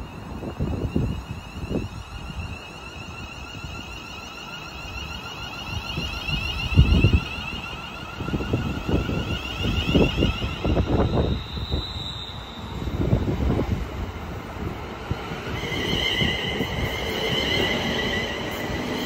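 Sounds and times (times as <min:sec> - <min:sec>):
electric train whine: 0:00.0 - 0:19.0
wind buffeting the microphone: 0:05.8 - 0:19.0.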